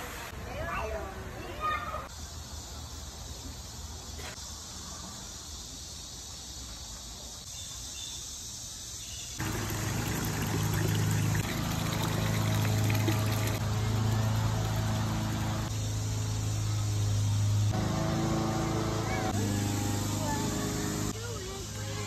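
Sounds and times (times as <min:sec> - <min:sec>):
fountain water trickling and splashing: 0:09.4 - 0:16.6
fountain pump hum: 0:09.4 - 0:22.0.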